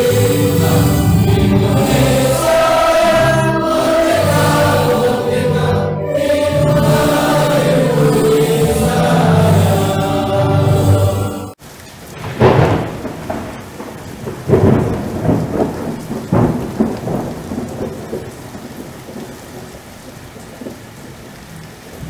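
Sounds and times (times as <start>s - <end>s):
thunder claps: 0.0s - 5.6s, 12.0s - 19.8s
steady rain: 0.0s - 22.0s.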